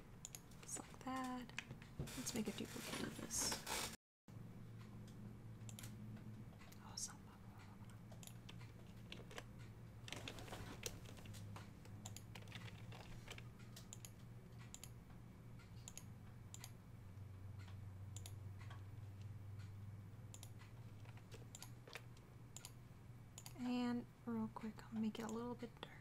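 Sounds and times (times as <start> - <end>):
keyboard and mouse clicks: 0.2 - 1.8, 5.0 - 7.0, 7.6 - 15.0, 15.6 - 16.8, 17.6 - 18.9, 20.3 - 22.8, 23.4 - 23.7
low steady hum: 4.3 - 26.0.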